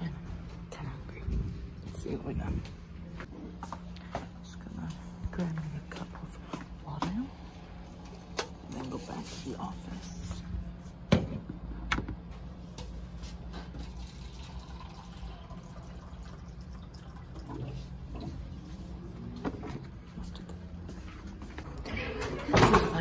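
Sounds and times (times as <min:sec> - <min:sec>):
steady low hum: 0:00.0 - 0:14.1
water running into a cup: 0:13.7 - 0:18.4.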